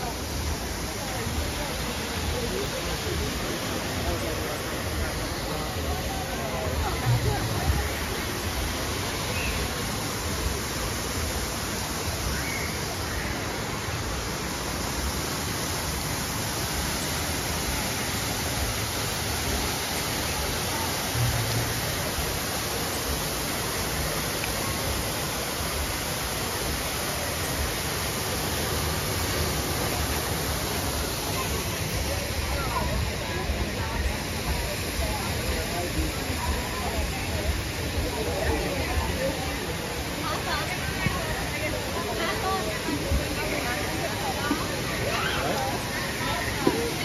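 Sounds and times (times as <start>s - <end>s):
waterfall pouring into a pool: 0.0s - 47.0s.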